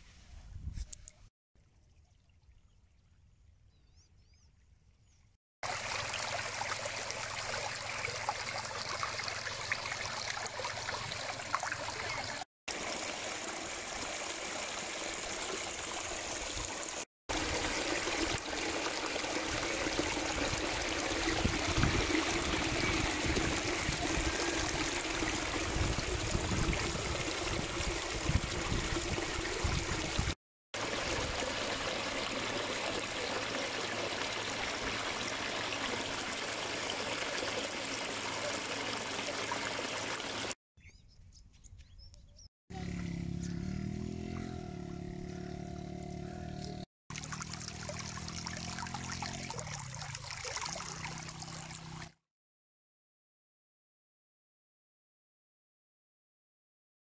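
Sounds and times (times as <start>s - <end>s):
water rushing over rock ledge: 10.0s - 40.6s.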